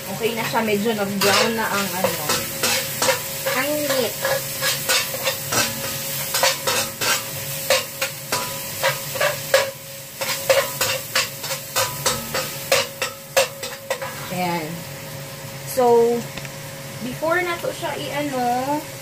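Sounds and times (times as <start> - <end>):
meat sizzling in a wok: 0.0 - 19.0
spatula scraping and clinking on pan: 1.2 - 14.4.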